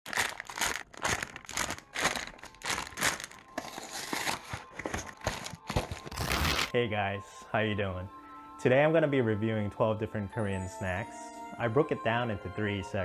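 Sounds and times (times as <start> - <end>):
plastic packaging crinkling: 0.1 - 6.8.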